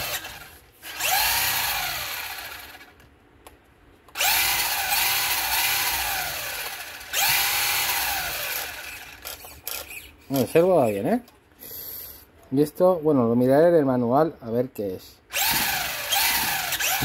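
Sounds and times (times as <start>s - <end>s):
toy car electric motor whirring: 0.0s - 2.9s, 4.1s - 11.0s, 15.3s - 17.0s.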